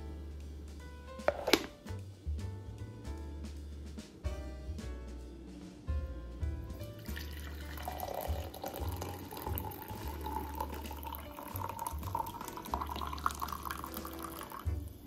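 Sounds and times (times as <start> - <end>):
coffee pouring into a mug: 7.0 - 15.0.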